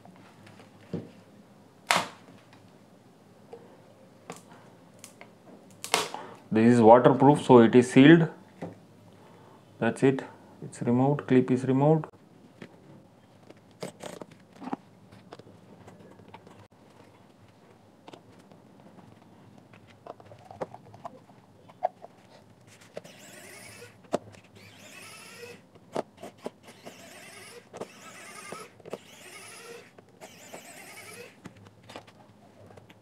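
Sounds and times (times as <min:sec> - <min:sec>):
electric screwdriver whirring: 0:23.0 - 0:24.0, 0:24.6 - 0:25.6, 0:26.2 - 0:31.4.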